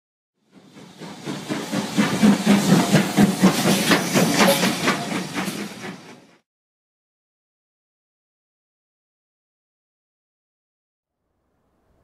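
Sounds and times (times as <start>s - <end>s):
steam locomotive exhaust chuffs: 0.4s - 6.4s
steam hiss: 0.5s - 6.4s.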